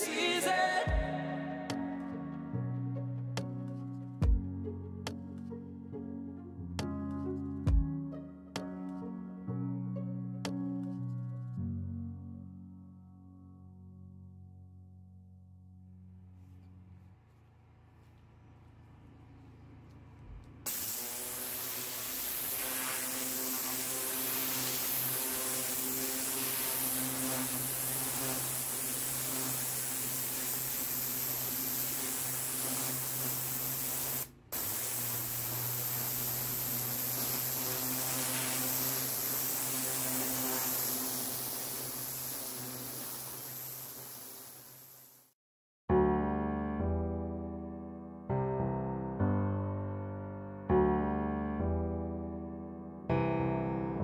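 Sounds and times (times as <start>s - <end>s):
pressure washer hum: 16.4s - 45.3s
pressure washer spray hissing: 20.6s - 45.4s.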